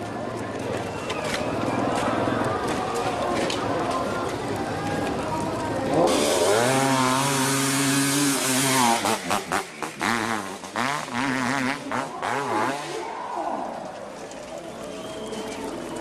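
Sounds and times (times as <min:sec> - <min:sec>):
dirt bike engine revving: 0:05.9 - 0:13.1.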